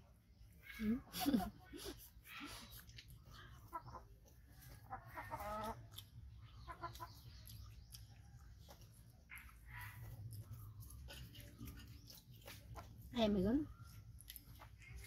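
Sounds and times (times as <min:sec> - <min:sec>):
chickens clucking: 0:01.2 - 0:13.0.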